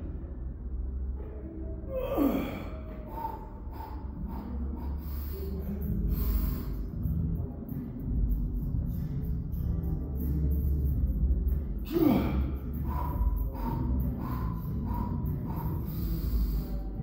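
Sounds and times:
person straining breaths: 1.8s - 7.3s, 11.5s - 17.0s
heavy exhales: 1.9s - 7.0s, 11.8s - 17.0s
strained voice sound: 8.8s - 17.0s
sharp gasp: 11.9s - 17.0s.

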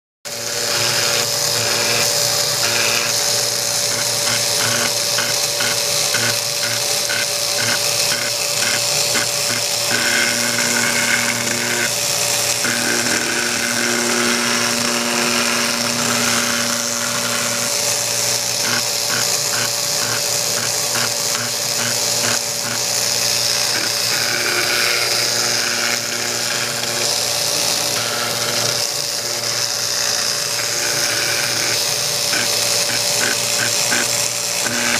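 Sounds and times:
engraving machine scratching metal: 0.3s - 34.9s.

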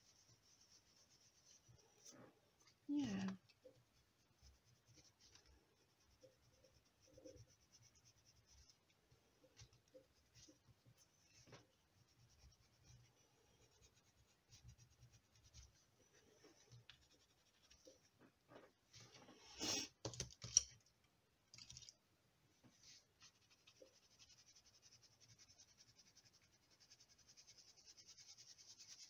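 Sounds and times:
pencil scratching on paper: 3.6s - 18.0s, 22.8s - 29.0s.

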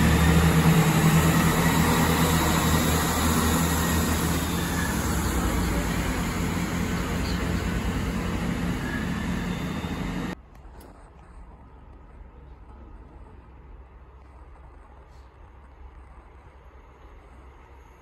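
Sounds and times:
station background: 0.0s - 10.4s
train engine hum: 0.0s - 10.4s
train wheel noise: 0.0s - 10.4s.

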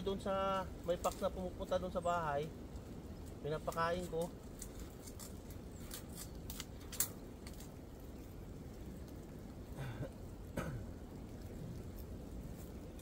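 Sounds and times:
wire snare and machete clicks: 3.7s - 7.7s.

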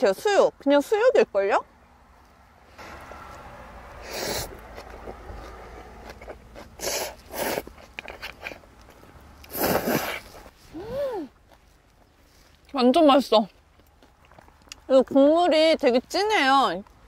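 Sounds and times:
person slurping noodle soup: 4.0s - 5.2s, 6.1s - 8.6s, 9.4s - 11.0s.

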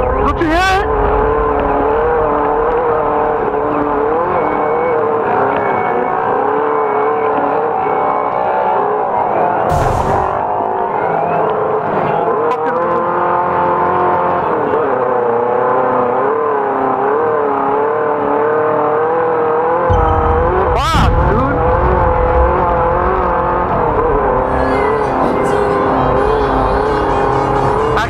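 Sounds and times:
deeper rumble: 0.0s - 5.3s, 19.9s - 28.0s
race car engine at high revs: 0.0s - 28.0s.

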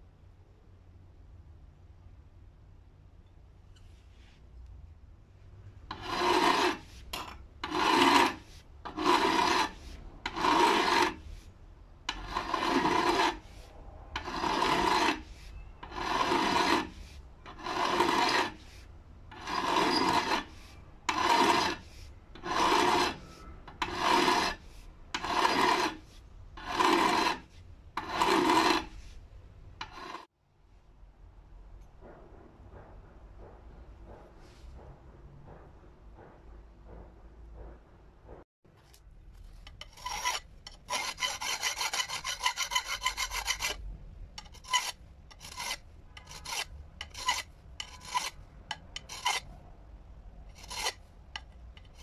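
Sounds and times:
file stroking across steel: 5.9s - 11.5s, 12.1s - 29.2s, 29.8s - 30.3s, 39.6s - 43.8s, 44.4s - 49.5s, 50.5s - 52.0s.

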